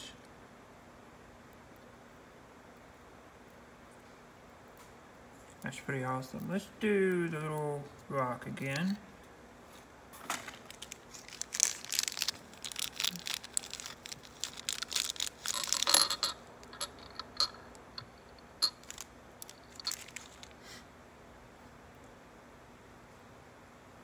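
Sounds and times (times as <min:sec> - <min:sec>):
small clicks and clinks: 0:10.7 - 0:20.6.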